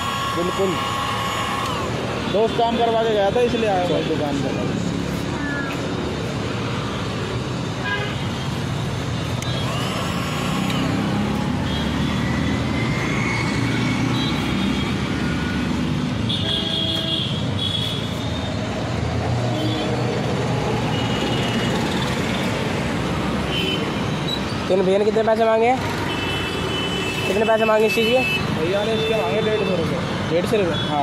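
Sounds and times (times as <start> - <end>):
car horn toots: 0.0 - 2.6
passing vehicle engines: 0.0 - 16.3.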